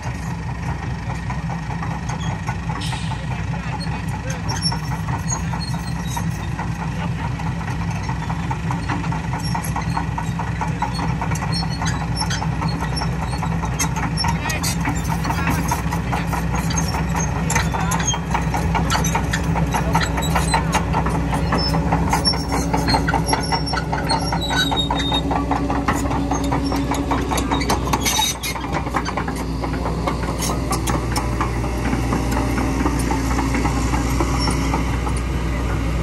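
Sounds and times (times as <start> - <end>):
excavator diesel engine running: 0.0 - 36.0
steel tracks clanking: 0.0 - 36.0.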